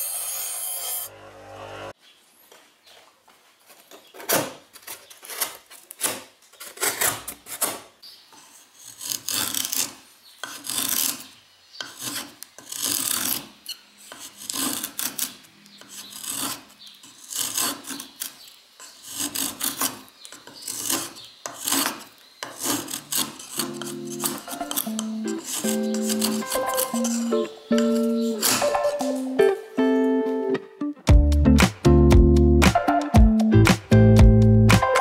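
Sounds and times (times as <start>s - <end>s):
knife scraping wooden stick: 4.8s - 29.3s.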